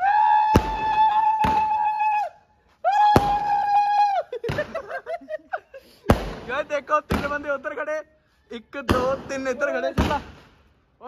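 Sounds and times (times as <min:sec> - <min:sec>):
fireworks bangs: 0:00.4 - 0:01.9, 0:03.1 - 0:03.7, 0:06.0 - 0:07.7, 0:08.8 - 0:10.7.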